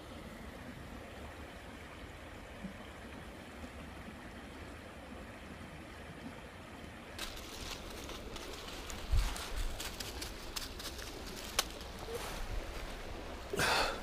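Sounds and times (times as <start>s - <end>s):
crackling rustle: 7.2s - 13.5s.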